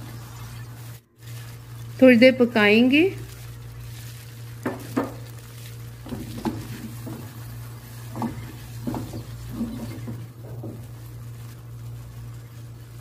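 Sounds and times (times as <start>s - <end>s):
low steady hum: 0.0s - 13.0s
spatula scraping a wok: 3.4s - 12.8s.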